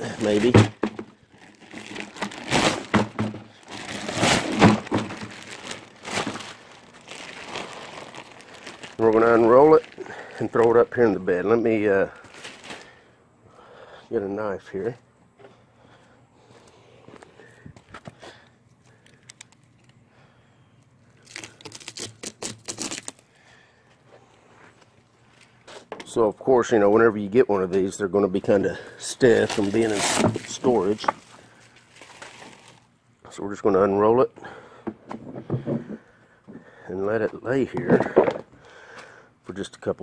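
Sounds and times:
rubber mat on concrete: 0:00.0 - 0:10.8
plastic wrap crinkling: 0:00.0 - 0:10.9, 0:12.1 - 0:13.0, 0:21.2 - 0:23.2, 0:29.2 - 0:32.9.

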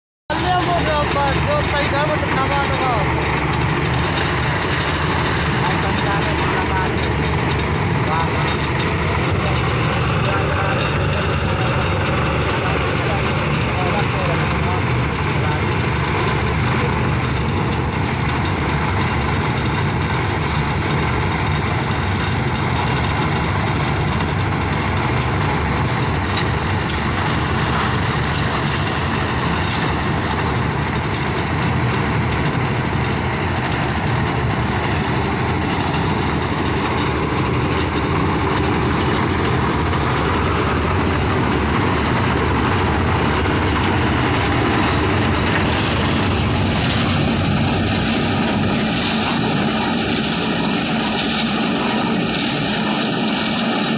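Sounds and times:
concrete mixer running: 0:00.3 - 0:53.9.

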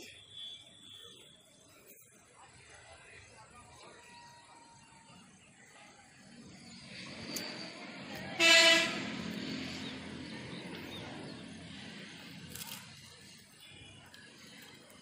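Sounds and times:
short horn blast: 0:08.4 - 0:09.2.

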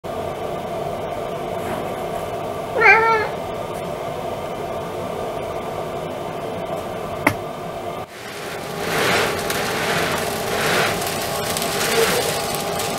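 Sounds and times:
steady background hum: 0:00.1 - 0:12.9
cat meowing: 0:02.8 - 0:03.4.

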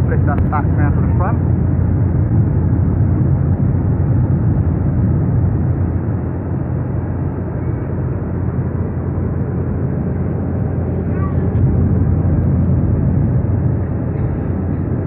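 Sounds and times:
airliner cabin rumble: 0:00.0 - 0:15.0.

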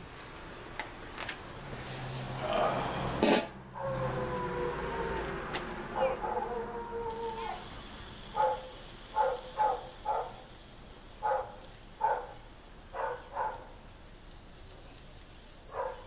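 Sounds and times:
dog barking: 0:06.0 - 0:07.2, 0:08.3 - 0:10.5, 0:11.2 - 0:13.8, 0:15.6 - 0:16.0.

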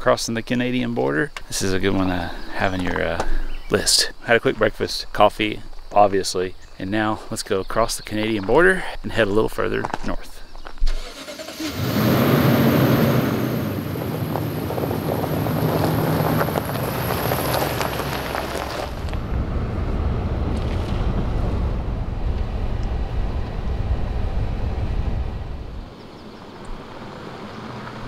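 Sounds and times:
road rumble: 0:00.0 - 0:28.0
car engine driving: 0:10.9 - 0:28.0.

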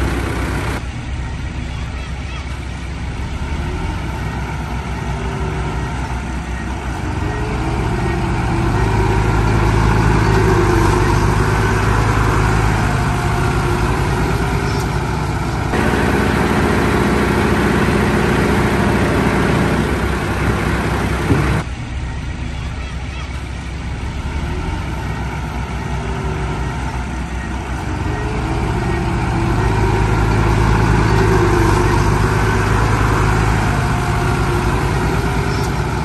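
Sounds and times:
heavy diesel engine running: 0:00.0 - 0:36.0.

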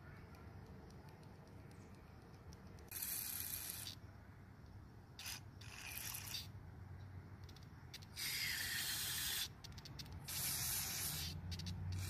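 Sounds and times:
aerosol spray hissing: 0:10.3 - 0:12.0.

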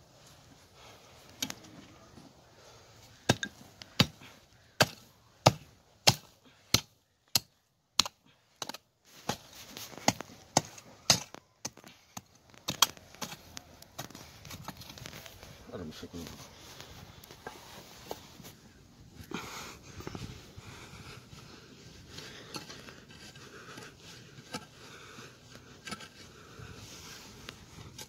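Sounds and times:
hoe striking stony earth: 0:04.8 - 0:15.0, 0:22.4 - 0:24.8, 0:25.8 - 0:26.3.

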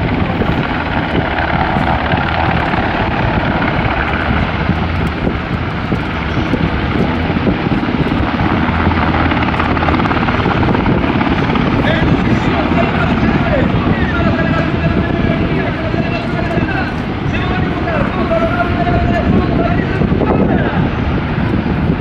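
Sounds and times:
helicopter rotors beating: 0:00.0 - 0:22.0
turbine engine whine: 0:00.0 - 0:22.0.

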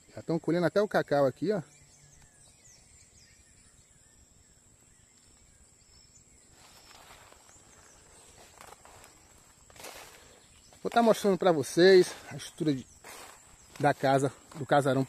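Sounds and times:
faint chirps: 0:00.0 - 0:15.0
soft rustling: 0:06.5 - 0:15.0.

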